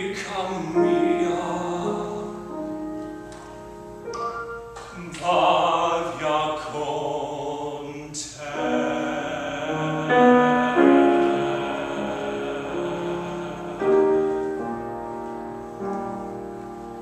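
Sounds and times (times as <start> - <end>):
man singing: 0.0 - 2.5, 4.9 - 14.5
piano accompaniment: 0.0 - 17.0.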